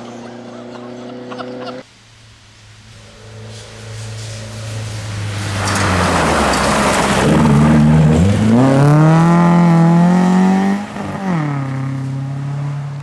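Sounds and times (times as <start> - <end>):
rally car engine accelerating: 3.0 - 13.0.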